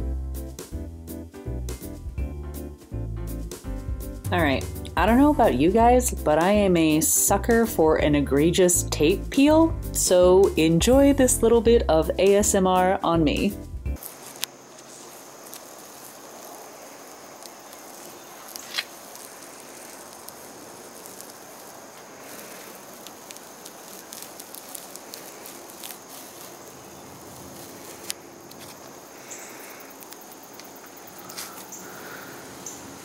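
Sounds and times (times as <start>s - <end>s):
tape peeling off: 14.0s - 32.3s.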